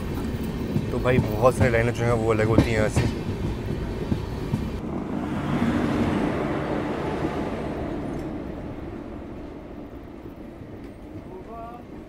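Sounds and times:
train rumbling past: 0.0 - 12.0.

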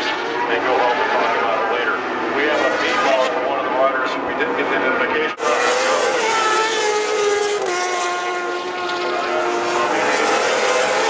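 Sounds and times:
motorcycle engine revving high: 5.4 - 11.0.

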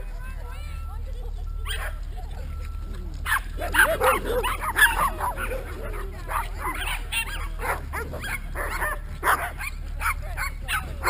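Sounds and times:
steady low rumble: 0.0 - 11.0
small dogs barking and yipping: 1.5 - 11.0.

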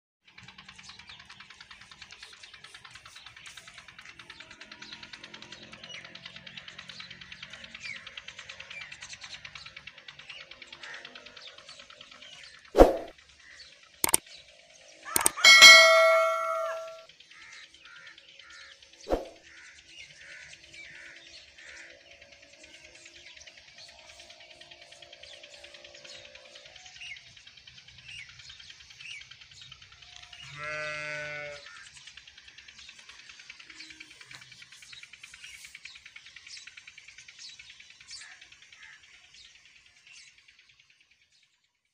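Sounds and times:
bright bell chime: 15.2 - 17.0
faint bird chirps: 15.2 - 17.0
mouse click: 15.2 - 17.0.

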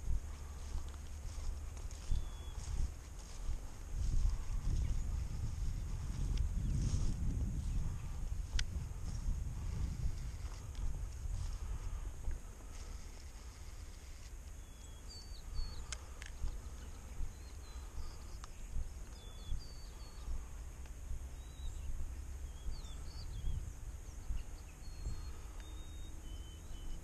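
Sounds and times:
small birds chirping: 0.0 - 27.0
steady low rumble: 0.0 - 27.0
sharp clicks: 15.7 - 16.6.

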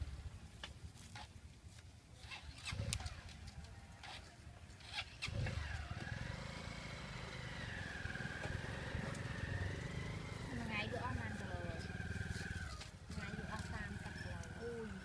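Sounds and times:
vehicle engine running: 4.8 - 15.0.

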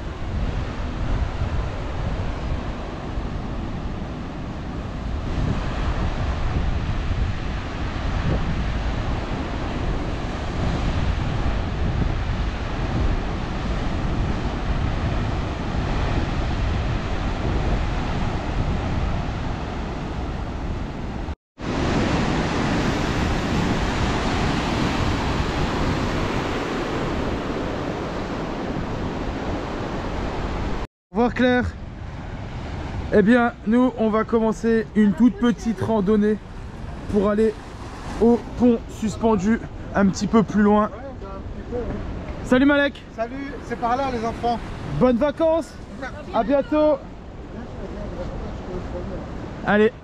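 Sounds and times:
wind on microphone: 0.0 - 30.8
surf breaking on rocky shore: 21.6 - 30.8.

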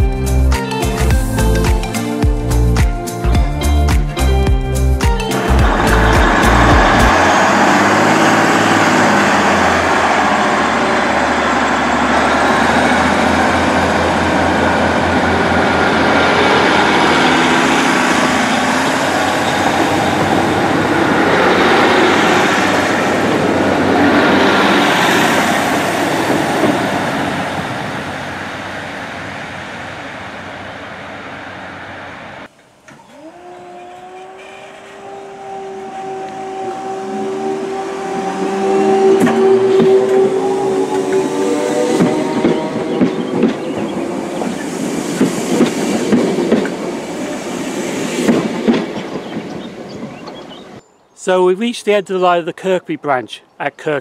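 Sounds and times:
diesel train engines: 3.6 - 54.0
electric train motor whine: 5.4 - 48.5.

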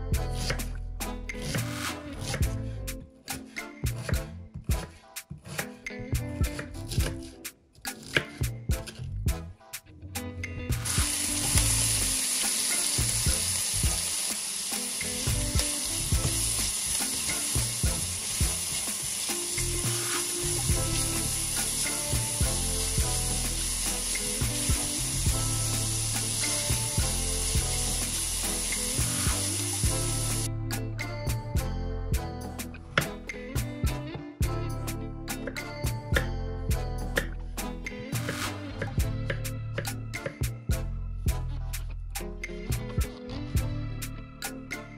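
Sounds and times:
background music: 0.0 - 44.9
food sizzling in frying pan: 10.8 - 30.5.

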